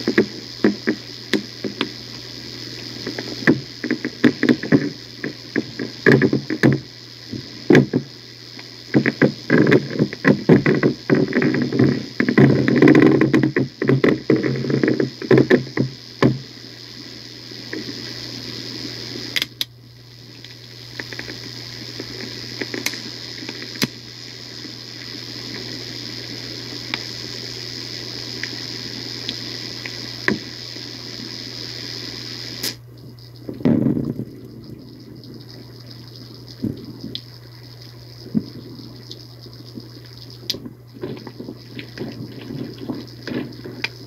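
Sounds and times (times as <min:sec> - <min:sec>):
faint high whine: 0:00.0 - 0:44.0
low hum: 0:00.0 - 0:44.0
scattered clicks and knocks: 0:03.1 - 0:08.1.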